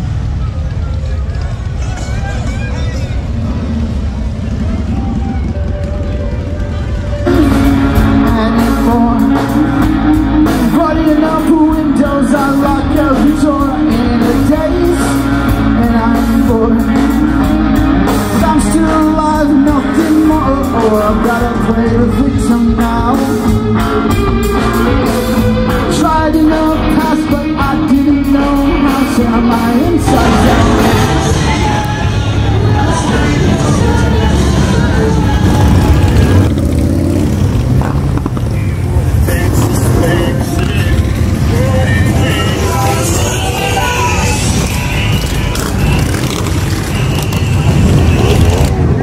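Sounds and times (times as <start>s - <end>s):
bass guitar: 0.0s - 49.0s
drums: 0.0s - 49.0s
electric guitar: 1.4s - 49.0s
person singing: 6.4s - 36.5s, 39.2s - 45.3s.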